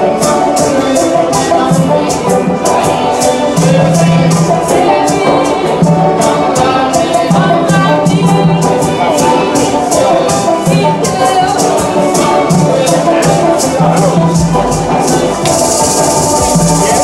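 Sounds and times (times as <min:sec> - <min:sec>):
person singing: 0:00.0 - 0:17.0
shaker beat: 0:00.0 - 0:17.0
upbeat music: 0:00.0 - 0:17.0.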